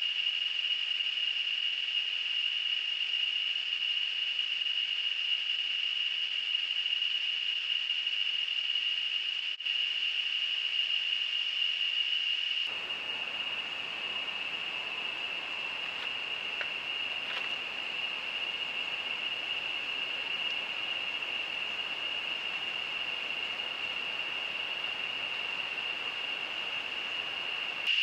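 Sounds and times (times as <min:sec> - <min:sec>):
high-pitched insect drone: 0:00.1 - 0:28.0
hiss: 0:00.1 - 0:28.0
faint ticks: 0:12.7 - 0:27.9.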